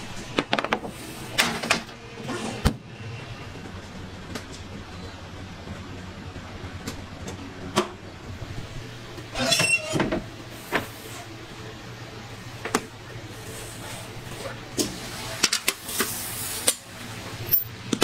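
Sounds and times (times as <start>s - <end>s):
steady low hum: 0.0s - 18.0s
oven door squealing open: 9.3s - 10.3s.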